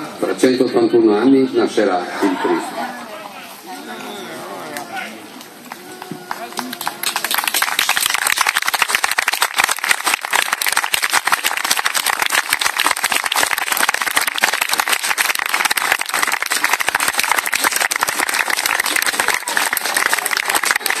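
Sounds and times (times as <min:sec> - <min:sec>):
crowd applauding: 0:04.6 - 0:21.0.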